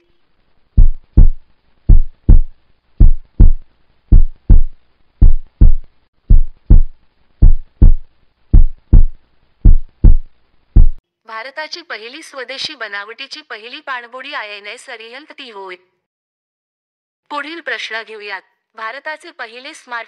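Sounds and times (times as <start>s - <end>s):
heartbeat thumps: 0.8s - 11.0s.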